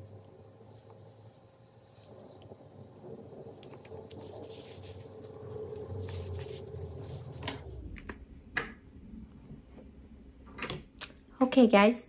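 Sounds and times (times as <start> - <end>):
low steady hum: 0.0 - 12.0
paper tissue crinkling: 3.8 - 7.4.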